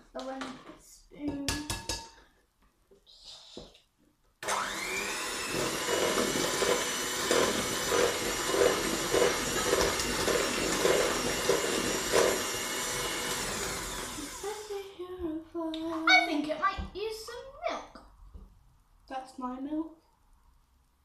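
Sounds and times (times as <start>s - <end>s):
electric hand mixer whining: 4.4s - 14.7s.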